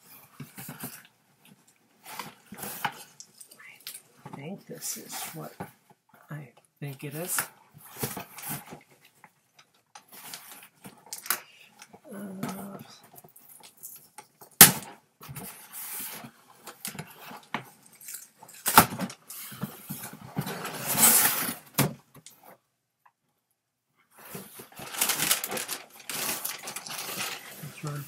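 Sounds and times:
cardboard flaps scraping and rustling: 24.2 - 28.0.

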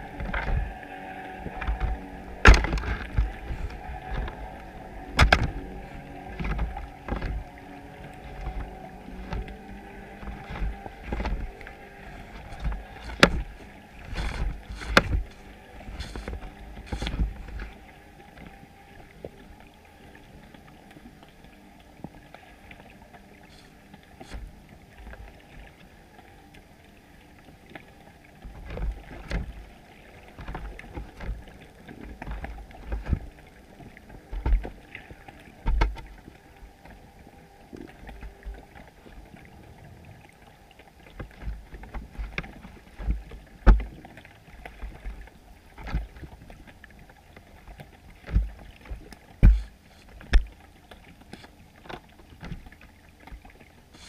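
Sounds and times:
underwater knocks and thumps: 0.0 - 18.6, 28.4 - 29.7, 30.3 - 36.2, 41.1 - 53.6
faint underwater background noise: 0.0 - 54.0.

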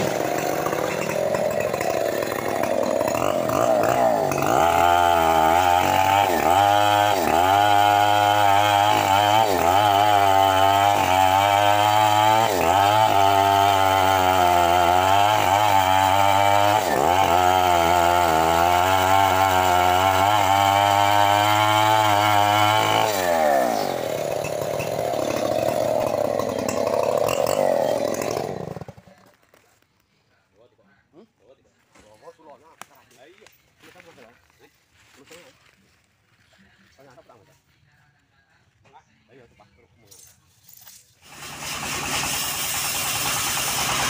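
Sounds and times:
chainsaw cutting wood: 0.0 - 29.6, 41.1 - 44.0.

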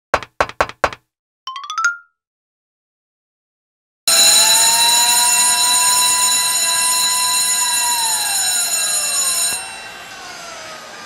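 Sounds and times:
electric siren wailing: 4.1 - 11.0.

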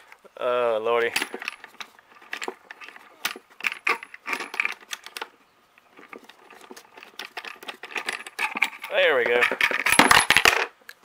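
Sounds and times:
metal hardware clinking on plastic: 1.0 - 10.7.

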